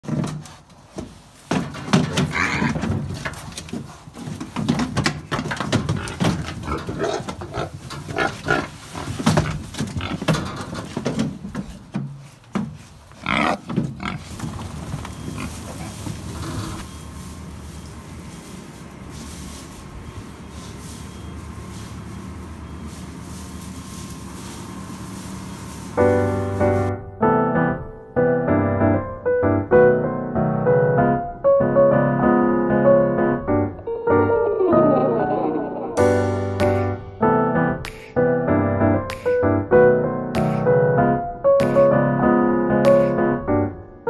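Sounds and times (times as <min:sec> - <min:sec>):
pigs grunting and squealing: 0:02.1 - 0:03.0, 0:05.9 - 0:10.9, 0:13.2 - 0:14.6, 0:15.2 - 0:16.8
low background noise: 0:14.2 - 0:27.0.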